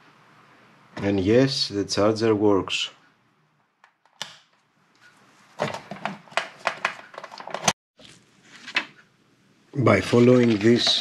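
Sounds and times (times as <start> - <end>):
hands handling equipment: 5.6 - 9.0.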